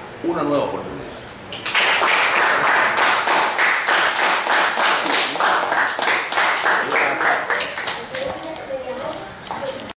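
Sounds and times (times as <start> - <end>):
people clapping in rhythm: 1.5 - 8.2.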